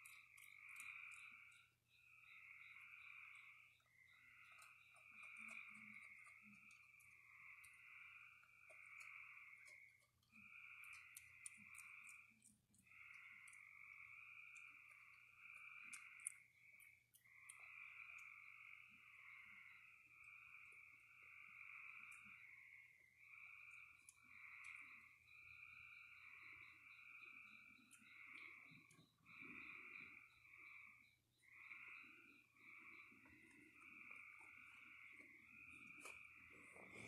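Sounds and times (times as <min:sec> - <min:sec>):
frogs trilling: 0:00.0 - 0:37.0
animal chewing crunchy food: 0:08.4 - 0:13.6.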